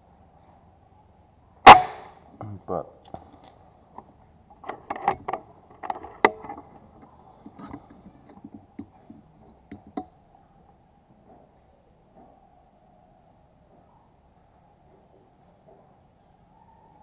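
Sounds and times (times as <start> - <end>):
air rifle handling clicks and knocks: 3.1 - 10.1.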